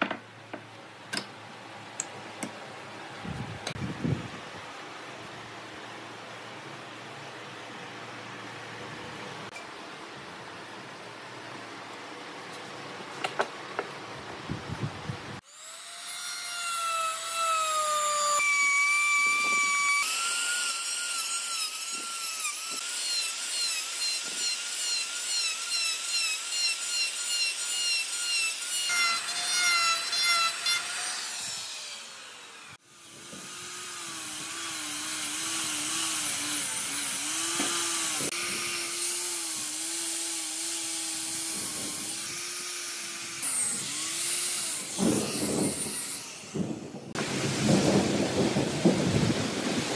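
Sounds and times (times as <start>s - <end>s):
angle grinder sanding wood: 15.4s - 47.4s
electric router cutting wood: 15.4s - 47.4s.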